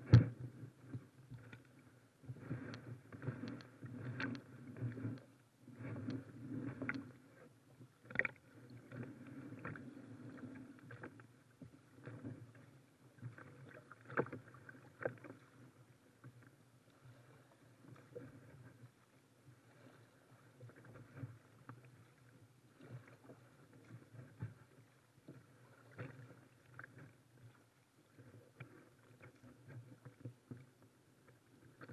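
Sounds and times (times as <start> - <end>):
paddle splashing through water: 12.0 - 15.8, 19.5 - 30.4.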